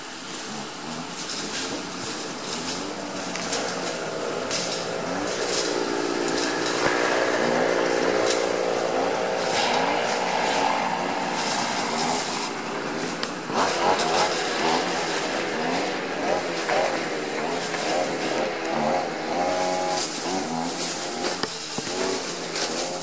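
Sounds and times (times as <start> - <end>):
motor engine running: 0.0 - 23.0.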